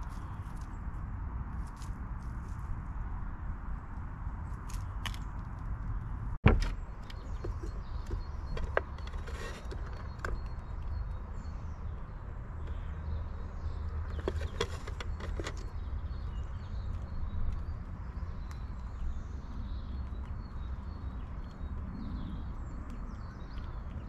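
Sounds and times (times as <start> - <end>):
clicks knocks and creaks: 6.4 - 11.2.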